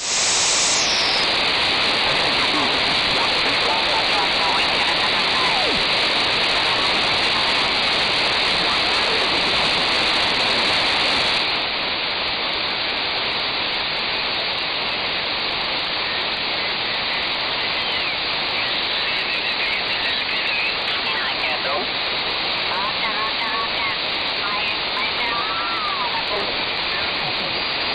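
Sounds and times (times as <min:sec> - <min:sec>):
radio band noise hiss: 0:00.0 - 0:27.9.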